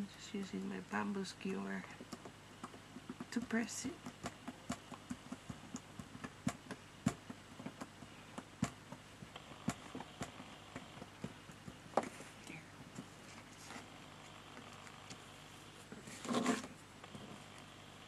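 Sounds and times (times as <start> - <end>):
skewer tapping on paper: 1.9 - 12.2.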